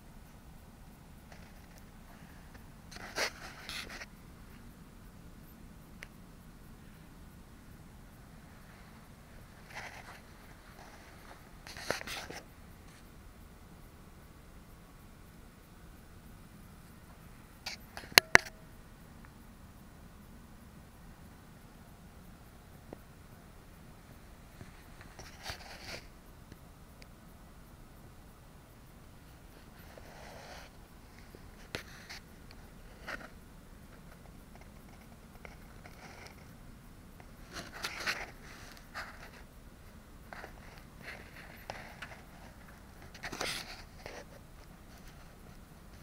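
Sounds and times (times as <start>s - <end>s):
faint ticks: 0.0s - 7.4s, 8.1s - 19.5s, 20.2s - 46.0s
rustling and scraping: 1.2s - 4.7s, 8.5s - 13.1s, 24.5s - 26.1s, 29.2s - 36.5s, 37.2s - 39.5s, 40.3s - 46.0s.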